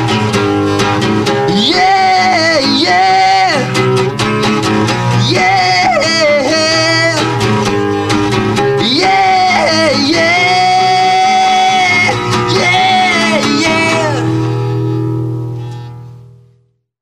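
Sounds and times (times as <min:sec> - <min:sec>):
rock guitar: 0:00.0 - 0:16.6
man singing: 0:01.3 - 0:03.8, 0:05.0 - 0:07.6, 0:08.5 - 0:14.6.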